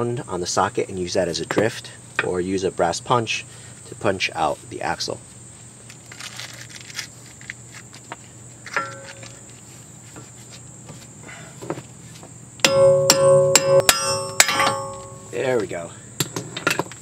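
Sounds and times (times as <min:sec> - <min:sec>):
hammer striking metal: 0:12.6 - 0:15.4.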